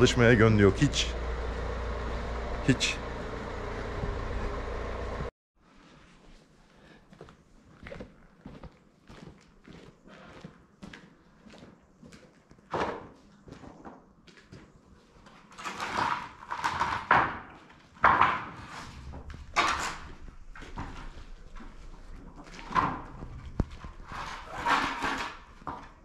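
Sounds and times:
boards scraping: 15.6s - 26.0s.

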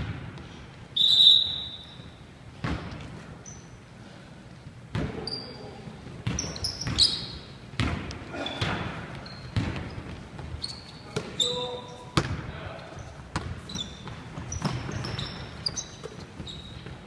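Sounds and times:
basketball bouncing on hardwood floor: 7.8s - 8.8s, 9.6s - 10.6s, 13.3s - 17.0s.

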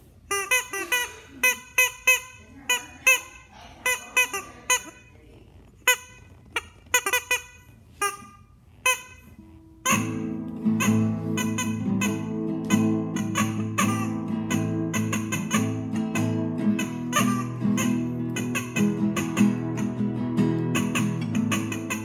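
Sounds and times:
rubber chicken squawking: 0.3s - 5.1s, 5.8s - 22.0s
acoustic guitar playing: 9.3s - 22.0s.

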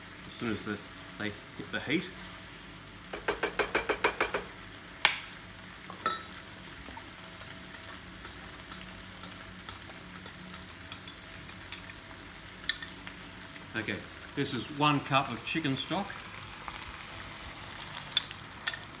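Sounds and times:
food frying in a wok: 0.0s - 19.0s
utensils clinking: 18.2s - 19.0s.

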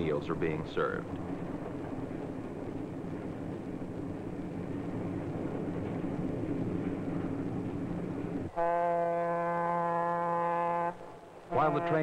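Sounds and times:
train rumbling: 0.0s - 12.0s
locomotive air horn blast: 8.5s - 12.0s.

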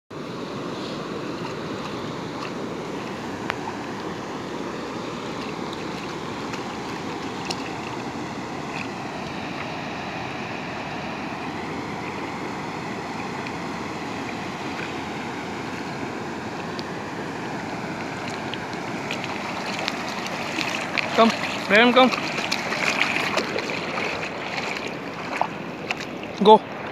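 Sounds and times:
river water rushing: 0.1s - 26.9s.

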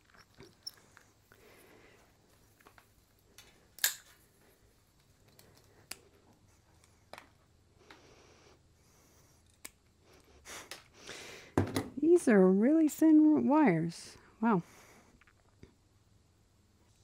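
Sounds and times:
wire cutters snipping wire: 3.8s - 4.1s.

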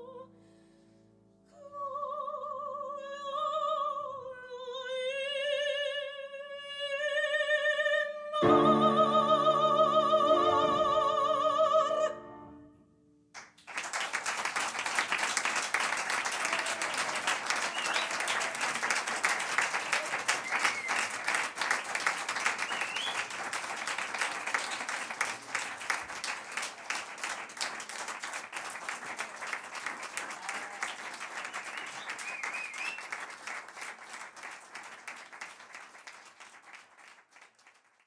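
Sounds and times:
audience applauding: 13.4s - 38.0s.

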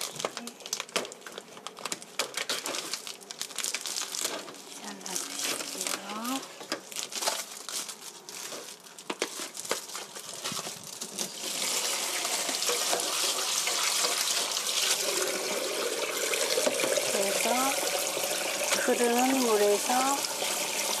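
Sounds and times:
plastic crinkling: 0.0s - 15.4s, 16.6s - 20.8s
kitchen tap water running: 11.3s - 21.0s
water splashing in steel sink: 11.4s - 21.0s.

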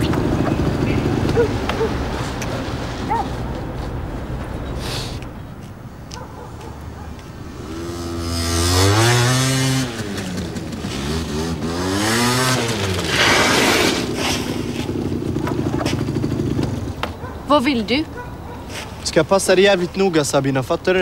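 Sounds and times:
vehicle engine revving: 7.4s - 17.0s.

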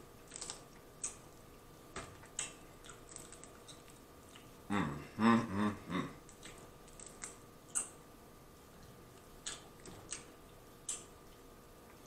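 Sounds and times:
shell crackling as peeled: 0.2s - 1.2s
person humming: 4.7s - 6.3s.

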